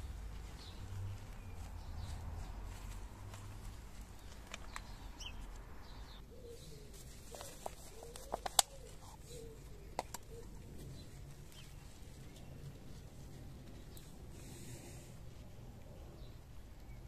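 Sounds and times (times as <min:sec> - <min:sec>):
dove cooing: 0:06.3 - 0:11.0
sharp clicks: 0:09.9 - 0:10.4.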